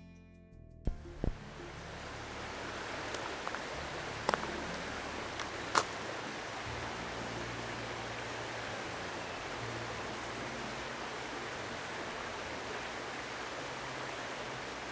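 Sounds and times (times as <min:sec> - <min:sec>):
low thumps: 0:00.9 - 0:07.1
outdoor background hiss: 0:00.9 - 0:14.9.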